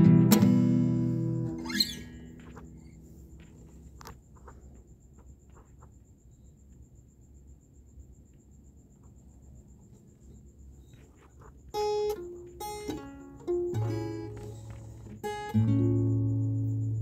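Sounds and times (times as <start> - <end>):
acoustic guitar strummed: 0.0 - 3.1, 11.7 - 17.0
insect trill: 0.0 - 17.0
rising string squeak: 1.6 - 3.0.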